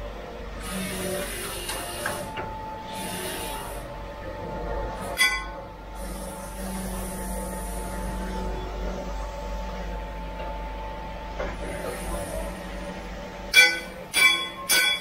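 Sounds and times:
grinding machine hum: 0.0 - 15.0
sharp metallic clank: 13.5 - 15.0.

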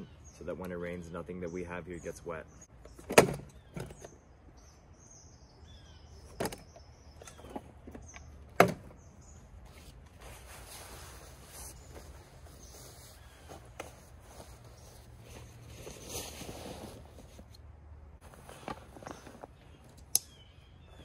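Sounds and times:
birds chirping faintly: 0.0 - 21.0
clothes rustling into backpack: 9.7 - 17.6, 18.2 - 19.9.

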